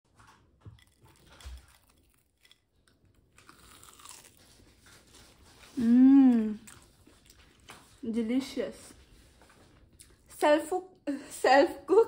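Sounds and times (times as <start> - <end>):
crunching and chewing: 0.1 - 8.0, 8.9 - 10.4.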